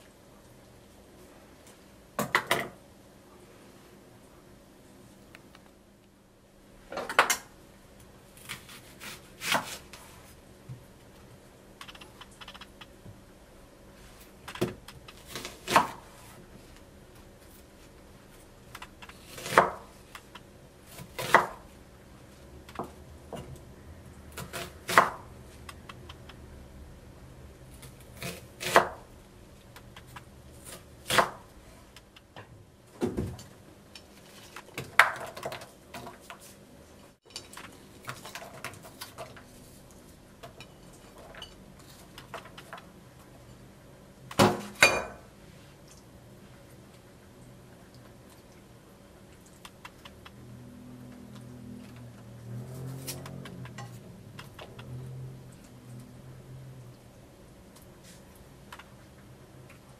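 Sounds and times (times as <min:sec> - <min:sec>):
knife chopping on wooden board: 0:19.3 - 0:19.9, 0:20.9 - 0:21.6, 0:24.4 - 0:25.2.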